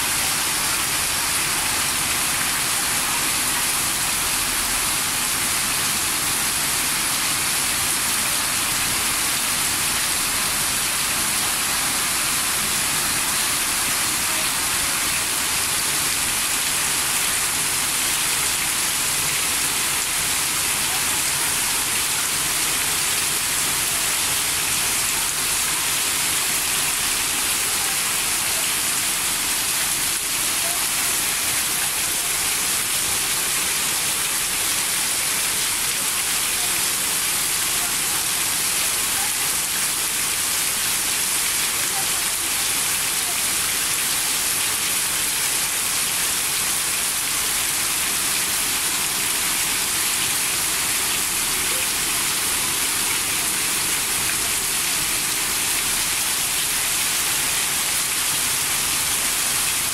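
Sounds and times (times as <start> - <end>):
heavy rain on pavement: 0.0 - 59.9.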